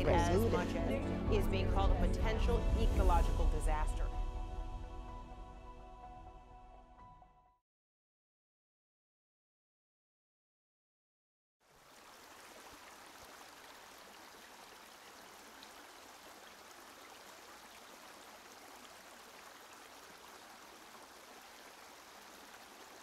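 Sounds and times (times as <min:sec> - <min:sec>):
stream running over rocks: 0:11.6 - 0:23.0.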